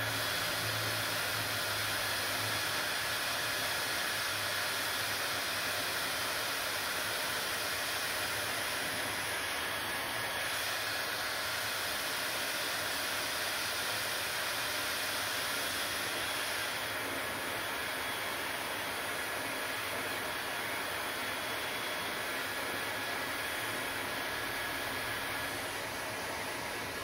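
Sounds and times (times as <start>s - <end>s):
hair dryer running: 0.0s - 27.0s.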